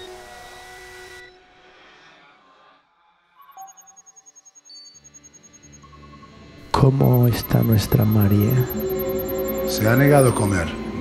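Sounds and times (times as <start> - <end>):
lingering tone: 6.8 - 10.4.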